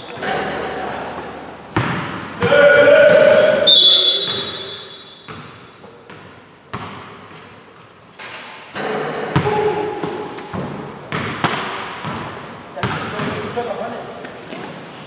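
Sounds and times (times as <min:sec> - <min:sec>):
voices: 0:00.0 - 0:04.7
basketball bouncing on wooden floor: 0:01.7 - 0:02.6, 0:05.3 - 0:07.4, 0:09.3 - 0:13.5
loud high-pitched tone: 0:02.4 - 0:04.7.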